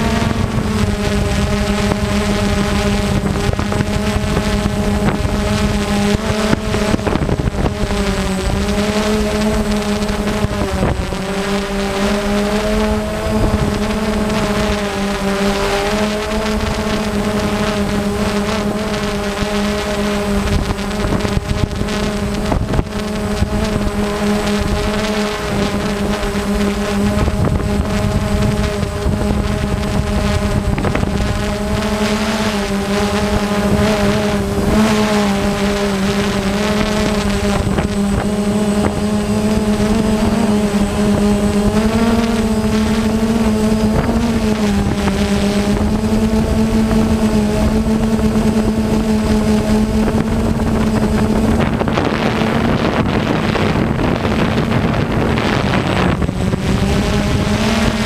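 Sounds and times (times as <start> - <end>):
drone propellers humming: 0.0 - 58.0
rushing wind: 0.0 - 58.0.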